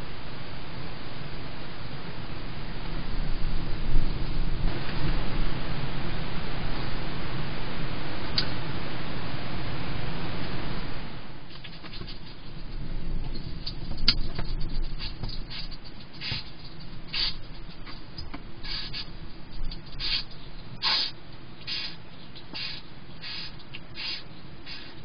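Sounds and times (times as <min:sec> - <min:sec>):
hedgehog chewing and crunching: 0:11.5 - 0:25.0.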